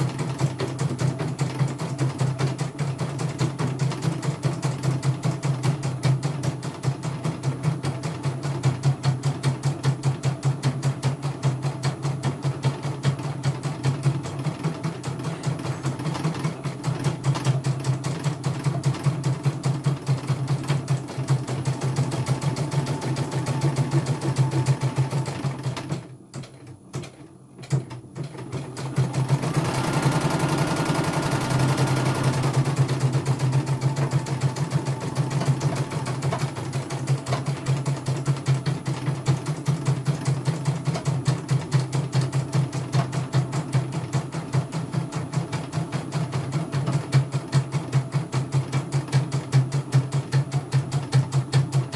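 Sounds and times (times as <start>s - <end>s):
steady motor hum: 28.9s - 40.1s.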